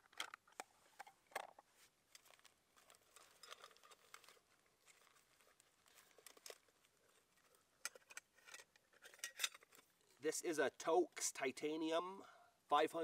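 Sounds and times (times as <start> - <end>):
soft rustling of stuff sack: 1.7 - 7.8.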